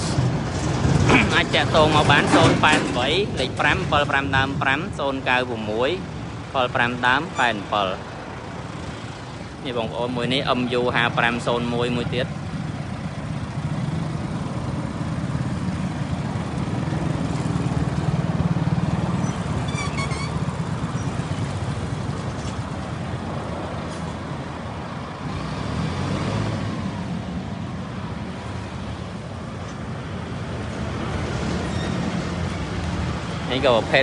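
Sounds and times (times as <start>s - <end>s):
tractor diesel engine running: 6.0s - 25.3s.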